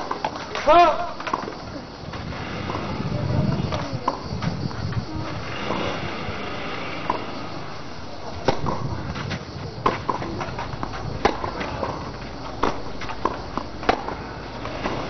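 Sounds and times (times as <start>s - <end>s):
steady outdoor hiss: 0.0s - 15.0s
racket striking tennis ball: 8.4s - 15.0s.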